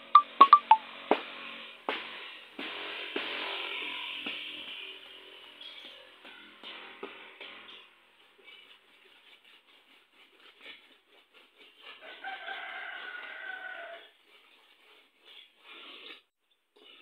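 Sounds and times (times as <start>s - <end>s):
rooster crowing: 12.0s - 14.1s.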